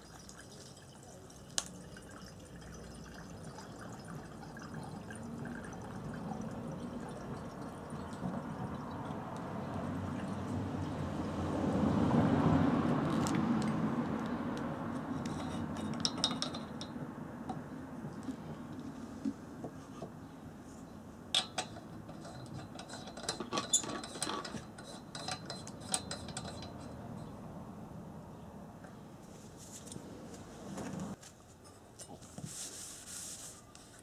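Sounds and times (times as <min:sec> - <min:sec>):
fuel pouring through funnel: 0:00.0 - 0:10.5.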